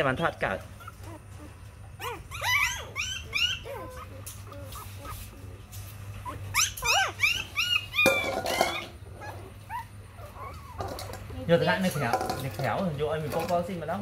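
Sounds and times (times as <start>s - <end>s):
puppies whimpering: 0.6s - 13.5s
rustling: 3.5s - 13.8s.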